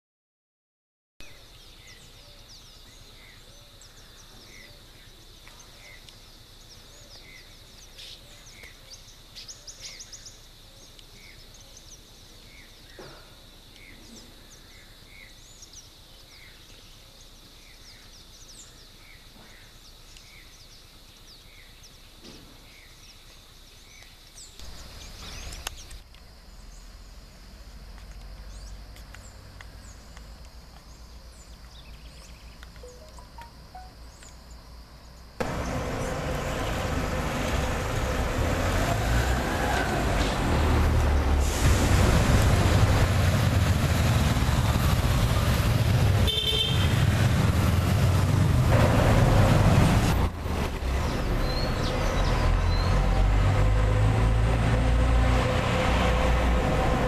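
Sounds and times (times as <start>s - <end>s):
birdsong: 1.2s - 27.6s, 28.4s - 37.1s, 50.9s - 53.1s
short repeating chirps: 32.8s - 34.0s.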